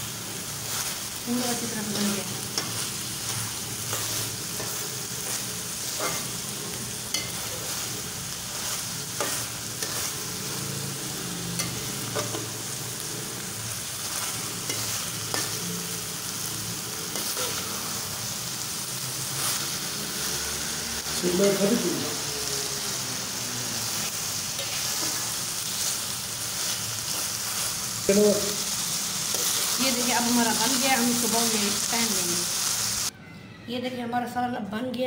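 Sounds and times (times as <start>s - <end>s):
mince sizzling in oil: 0.0s - 33.1s
metal spoon scraping a pot: 5.9s - 6.4s.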